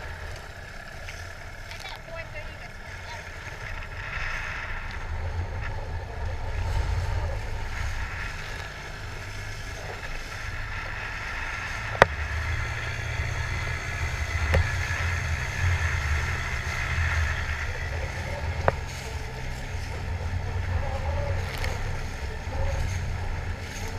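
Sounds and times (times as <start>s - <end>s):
outboard motor running: 0.0s - 23.9s.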